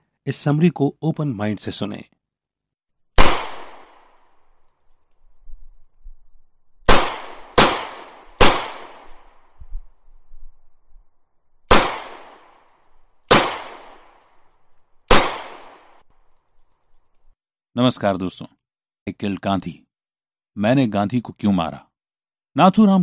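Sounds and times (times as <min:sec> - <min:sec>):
gunshots with echoing tail: 0:03.2 - 0:04.3, 0:06.8 - 0:09.6, 0:11.7 - 0:12.7, 0:13.3 - 0:14.5, 0:15.1 - 0:16.0.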